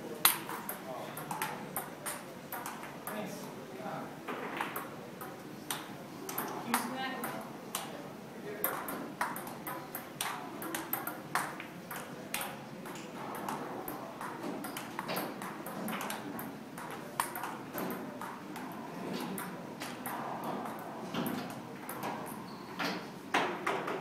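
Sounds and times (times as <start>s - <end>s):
room noise murmur: 0.0s - 24.0s
table tennis ball clicks: 8.6s - 20.2s.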